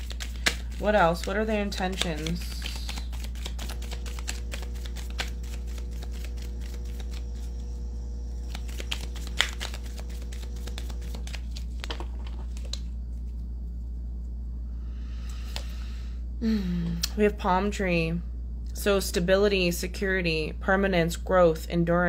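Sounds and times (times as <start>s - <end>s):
cards being shuffled: 0.0s - 7.8s, 8.4s - 13.4s
low steady hum: 0.0s - 22.0s.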